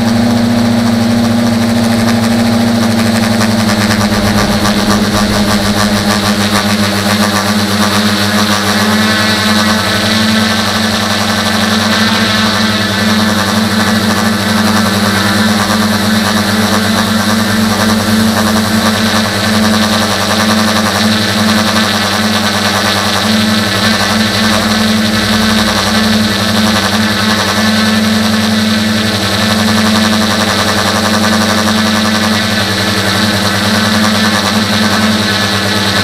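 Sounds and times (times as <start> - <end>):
drone motors and propellers humming: 0.0 - 36.0.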